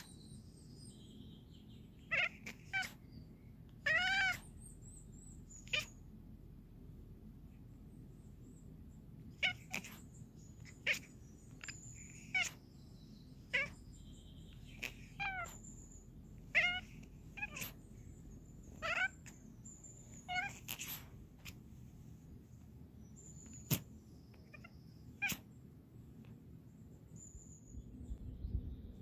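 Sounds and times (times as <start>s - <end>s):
cat chattering: 0.0s - 0.2s, 2.0s - 3.1s, 3.7s - 4.7s, 5.4s - 6.1s, 9.2s - 22.2s, 23.1s - 25.5s.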